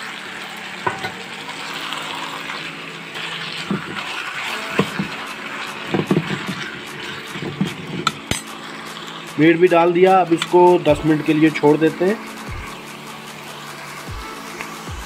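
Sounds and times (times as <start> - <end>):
meat sizzling in hot oil: 0.0 - 15.0
ladle knocking against pan: 5.9 - 6.6.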